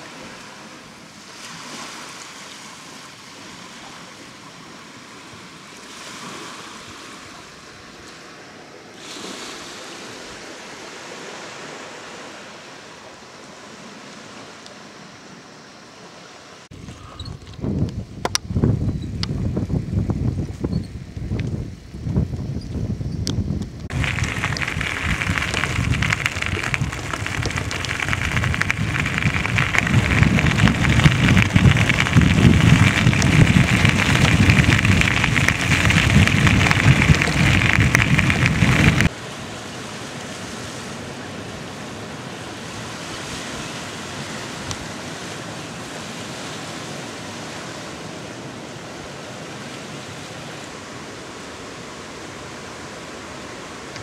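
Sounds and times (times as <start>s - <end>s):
wind buffeting microphone: 16.7s - 39.1s
soft steady hiss: 17.7s - 39.1s.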